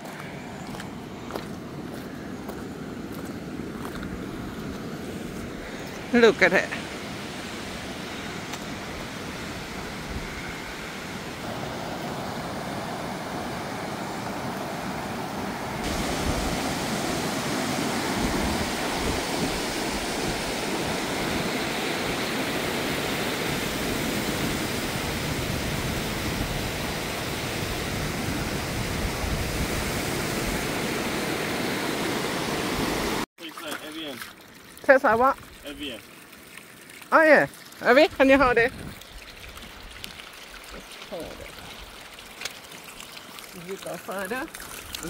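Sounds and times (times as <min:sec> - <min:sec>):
rushing mountain stream: 0:00.0 - 0:45.0.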